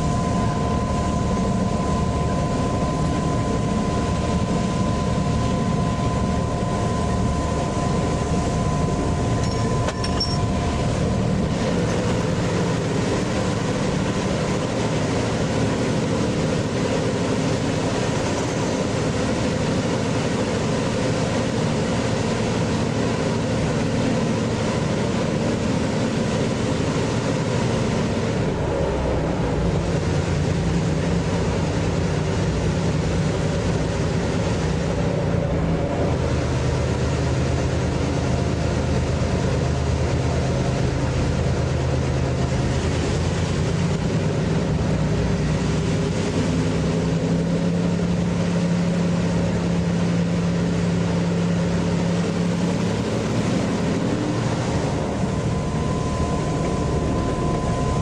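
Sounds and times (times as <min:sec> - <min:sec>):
wheel and rail noise: 0:00.0 - 0:16.0
diesel locomotive engine running: 0:00.0 - 0:58.0
thin steady whine: 0:00.0 - 0:58.0.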